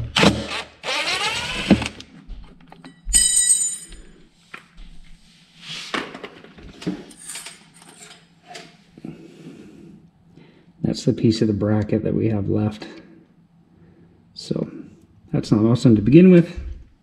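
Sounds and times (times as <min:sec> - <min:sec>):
metal fragment clinking on concrete: 0:02.9 - 0:04.2.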